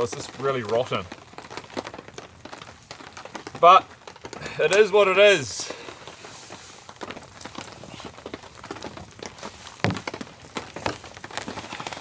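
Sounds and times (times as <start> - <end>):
campfire crackling: 0.0 - 12.0
sticks knocking in fire pit: 5.9 - 12.0.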